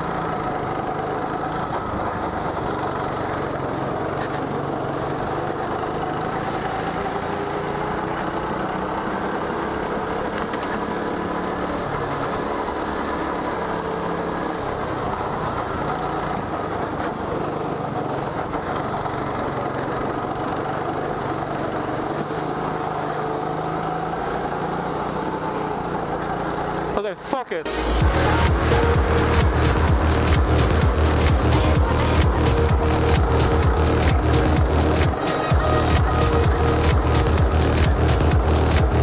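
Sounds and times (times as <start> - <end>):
go-kart engine running: 0.0 - 39.0.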